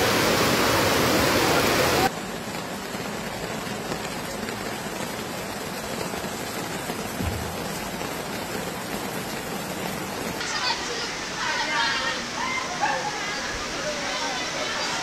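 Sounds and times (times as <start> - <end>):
steady rain hiss: 0.0 - 15.0.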